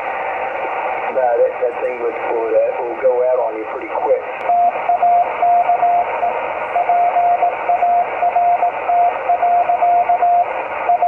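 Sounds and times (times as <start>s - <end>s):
radio static: 0.0s - 11.0s
morse code tone: 4.5s - 11.0s.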